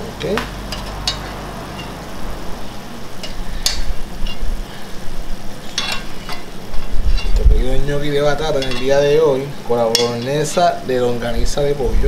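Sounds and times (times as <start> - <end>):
food sizzling in frying pan: 0.0 - 11.3
steady low hum: 0.0 - 12.0
metal spoon clicking on pan: 0.7 - 2.0, 9.9 - 10.6.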